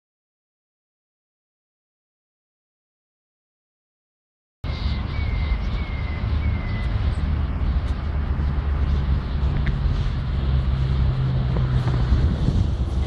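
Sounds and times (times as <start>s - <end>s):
low rumble of traffic: 4.6s - 13.0s.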